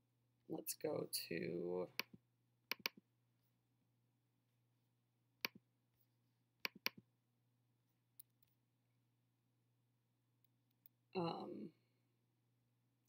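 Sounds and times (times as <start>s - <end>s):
computer mouse clicks: 2.0s - 3.0s, 5.4s - 5.6s, 6.6s - 7.0s.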